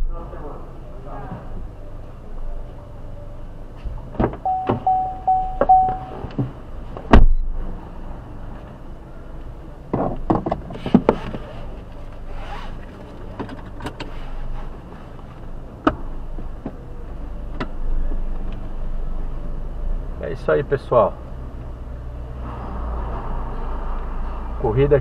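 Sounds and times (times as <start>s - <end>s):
car door opening and closing: 4.0s - 7.5s
short car beeps: 4.4s - 6.3s.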